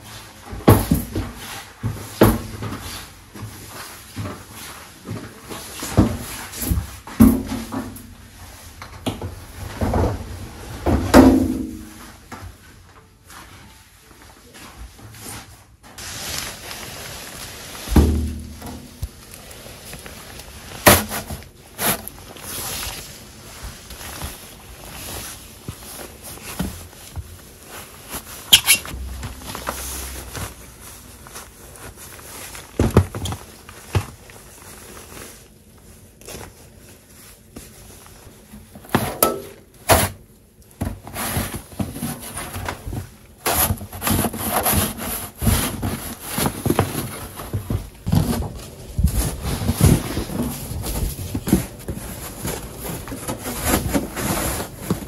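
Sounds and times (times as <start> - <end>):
knocks and rustles: 14.9 - 35.0, 38.6 - 55.0.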